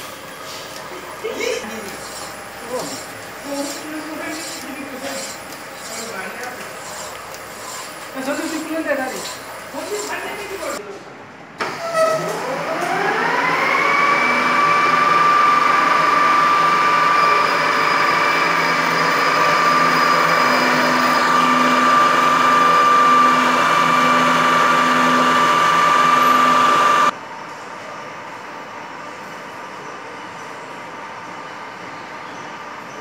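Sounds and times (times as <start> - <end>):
lathe whining: 0.0 - 10.8, 12.4 - 27.1
file scraping spinning metal: 1.5 - 10.8, 17.5 - 27.1.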